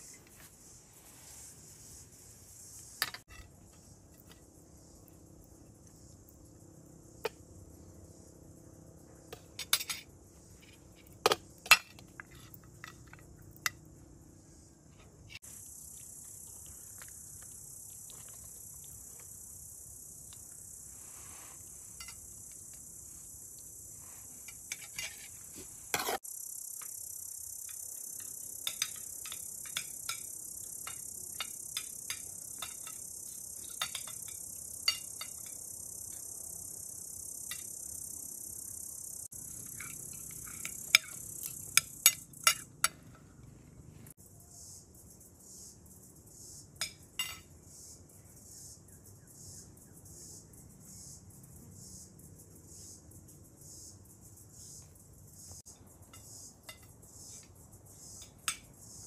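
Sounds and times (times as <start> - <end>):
high-pitched insect chorus: 0.0 - 43.4, 44.1 - 59.0
cutlery and dishes clinking: 47.2 - 47.4.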